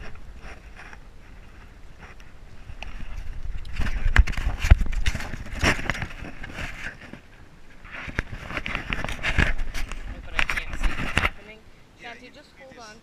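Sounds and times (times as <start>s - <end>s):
cloth rubbing on camera: 7.8s - 11.4s.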